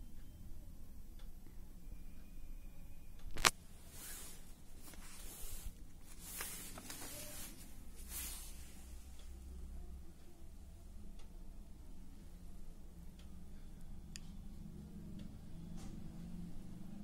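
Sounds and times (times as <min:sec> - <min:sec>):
paper pages rustling: 0:03.4 - 0:08.6.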